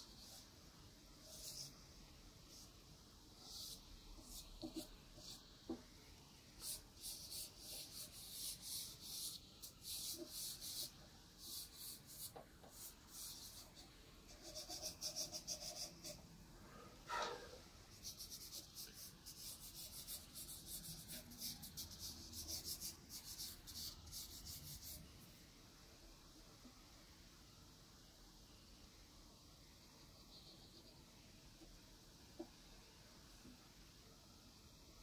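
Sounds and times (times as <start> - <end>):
pastel scratching on paper: 0.0 - 0.5, 1.2 - 1.8, 3.4 - 5.8, 6.6 - 16.2, 17.2 - 25.0.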